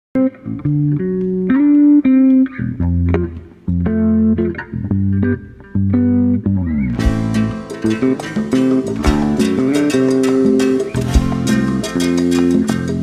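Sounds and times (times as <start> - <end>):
plucked string notes: 0.2 - 13.0
bass line: 2.6 - 13.0.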